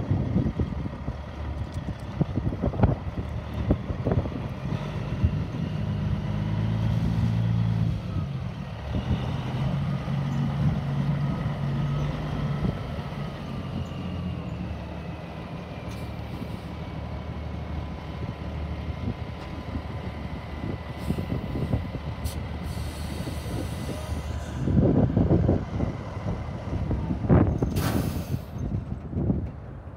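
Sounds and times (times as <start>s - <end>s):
diesel truck engine running: 0.0s - 29.9s.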